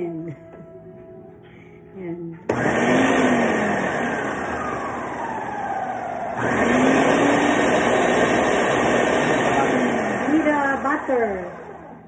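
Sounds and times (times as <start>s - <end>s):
blender motor whirring: 2.5s - 12.0s.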